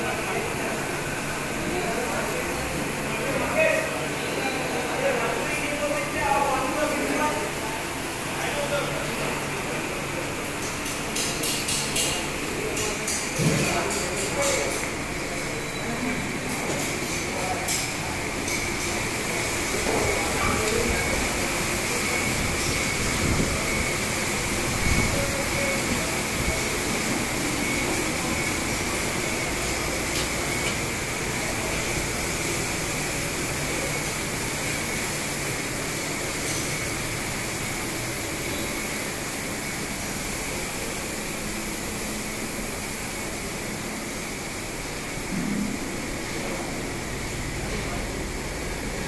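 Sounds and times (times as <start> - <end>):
factory machinery hiss: 17.8 - 49.0
high-pitched machine whine: 18.0 - 49.0.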